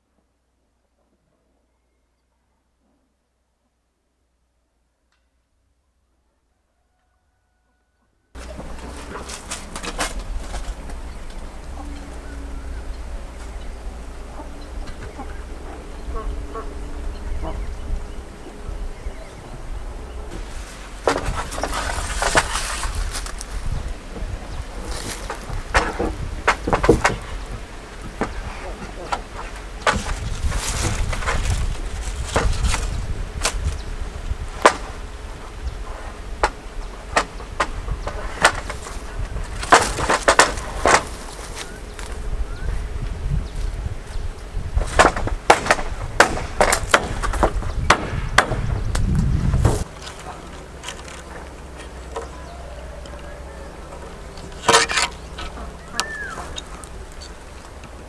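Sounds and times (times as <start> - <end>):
low rumble: 8.4 - 28.5
ducks quacking: 10.4 - 19.4
bamboo pole clacking on wood: 21.0 - 23.5, 24.8 - 33.7, 36.4 - 42.2, 44.8 - 53.3, 54.0 - 58.0.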